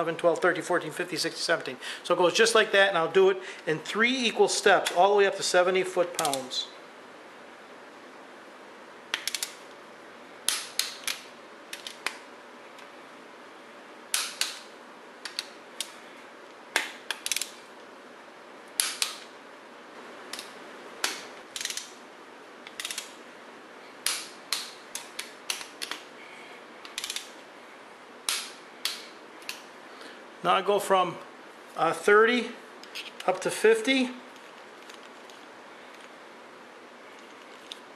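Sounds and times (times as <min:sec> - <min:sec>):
torque wrench ratcheting and clicking: 0:17.1 - 0:17.6, 0:21.0 - 0:21.9, 0:22.7 - 0:23.1, 0:26.9 - 0:27.3.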